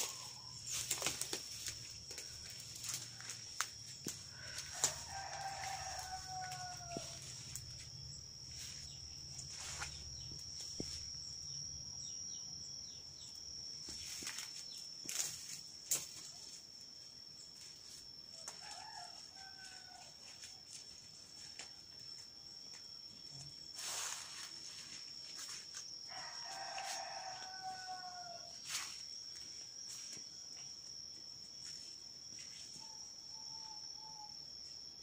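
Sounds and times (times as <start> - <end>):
high-pitched insect buzz: 0.0 - 35.0
rooster crowing: 2.9 - 7.7, 18.4 - 20.4, 26.1 - 28.9.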